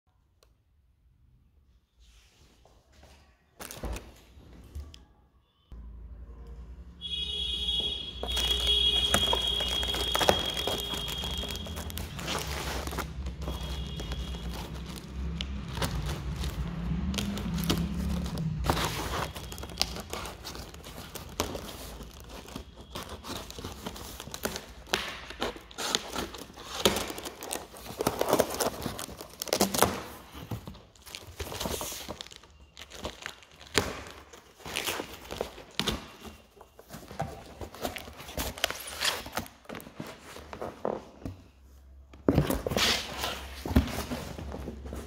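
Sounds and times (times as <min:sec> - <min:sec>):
paper and plastic tearing: 0:08.2 - 0:40.3
cardboard scraping and knocking: 0:42.2 - 0:45.0.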